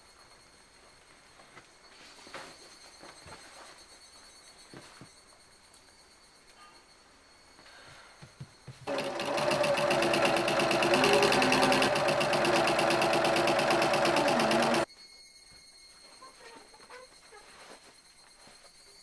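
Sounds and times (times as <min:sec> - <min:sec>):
sewing machine stitching: 0:08.9 - 0:14.9.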